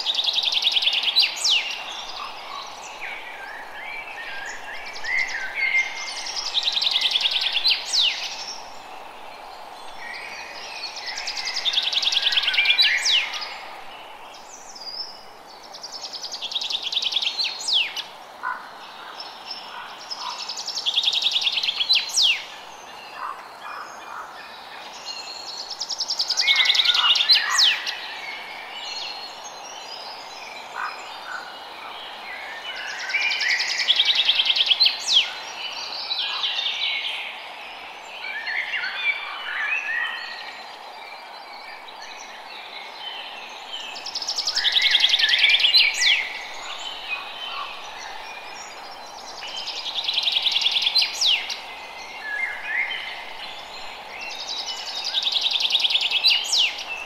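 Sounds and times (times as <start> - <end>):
steady background hiss: 0.0 - 57.0.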